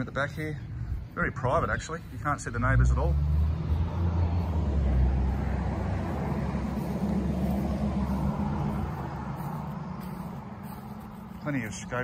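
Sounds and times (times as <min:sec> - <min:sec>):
low outdoor rumble: 0:00.7 - 0:12.0.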